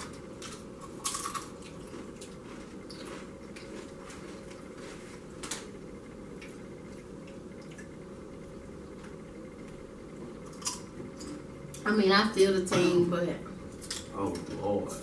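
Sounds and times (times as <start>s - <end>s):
people crunching chips: 0.0s - 2.7s
low room hum: 0.0s - 15.0s.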